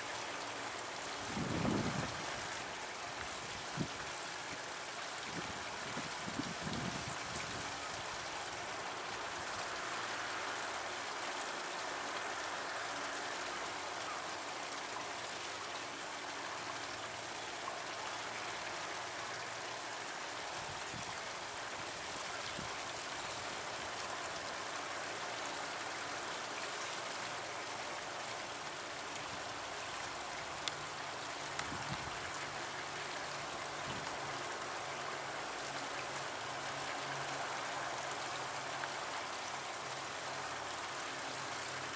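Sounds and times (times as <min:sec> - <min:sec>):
stream water rushing: 0:00.0 - 0:41.9
faint ticks: 0:30.6 - 0:30.8, 0:31.5 - 0:31.8.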